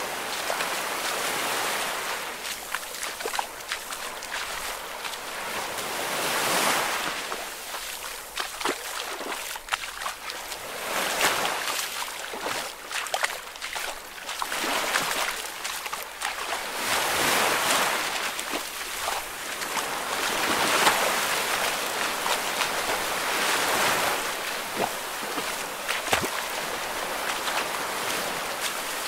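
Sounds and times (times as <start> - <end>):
ocean waves washing in: 0.0 - 8.1, 16.6 - 29.0
small water splashes and trickles: 0.0 - 29.0.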